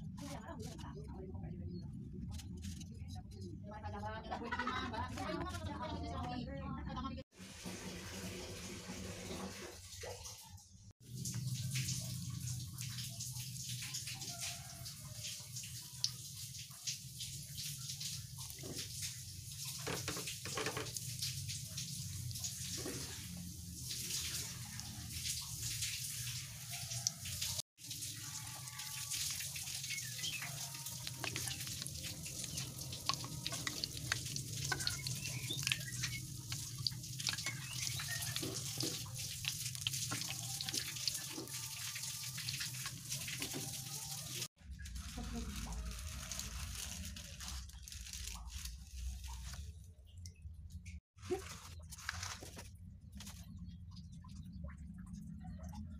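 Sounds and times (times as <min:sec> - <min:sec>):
oil sizzling and popping: 0:11.0 - 0:49.6.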